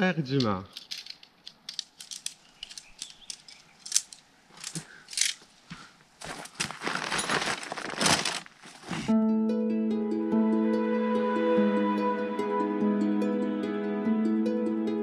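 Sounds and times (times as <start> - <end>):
tent poles clicking and tapping: 0.3 - 9.1
tent fabric rustling: 5.3 - 9.1.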